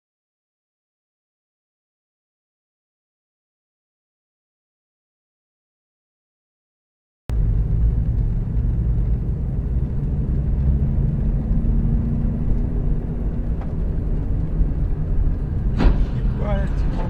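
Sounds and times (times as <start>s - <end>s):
car engine and tyres rumbling: 7.3s - 17.0s.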